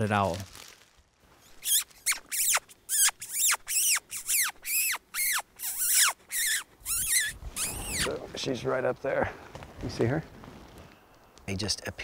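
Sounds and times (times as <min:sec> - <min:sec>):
animal calling with squeaky notes: 0:01.4 - 0:08.1.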